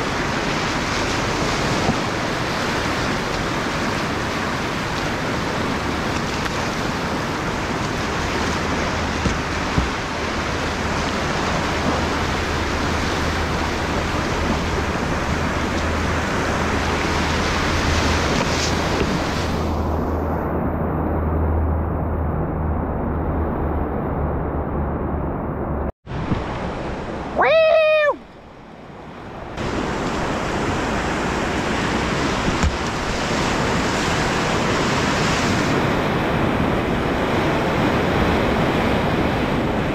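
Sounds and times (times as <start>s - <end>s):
rushing whitewater: 0.0s - 20.4s, 28.9s - 39.9s
short knocks on canoe: 9.1s - 10.1s, 32.4s - 33.0s.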